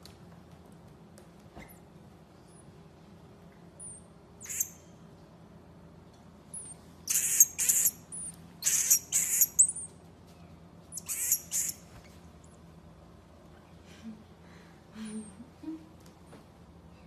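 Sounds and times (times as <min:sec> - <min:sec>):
marmoset shrill calls: 0:03.8 - 0:04.9, 0:06.5 - 0:09.9, 0:10.9 - 0:11.8.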